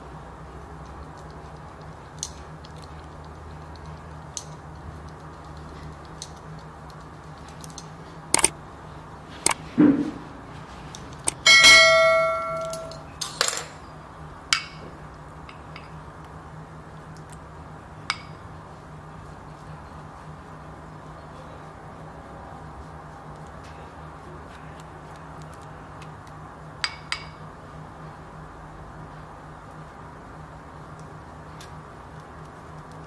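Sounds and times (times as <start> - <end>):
utensils and dishes clicking: 0.8 - 8.6, 10.9 - 13.8
bell-like clink of dish: 11.5 - 13.6.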